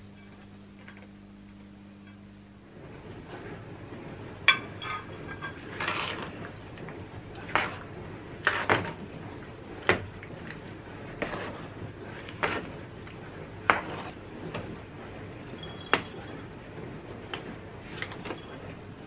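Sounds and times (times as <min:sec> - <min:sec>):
ladle stirring fruit in juice: 0:04.5 - 0:19.0.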